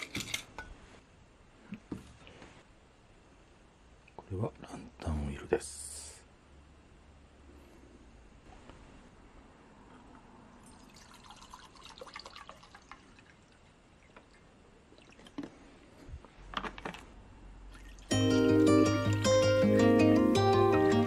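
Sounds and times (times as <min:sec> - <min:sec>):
oil trickling into metal cup: 0:10.6 - 0:15.5
music: 0:18.1 - 0:21.0.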